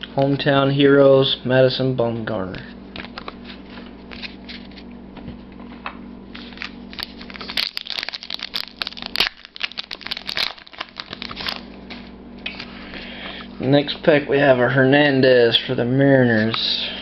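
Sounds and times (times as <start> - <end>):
wrapper crinkling and tearing: 6.4 - 12.7.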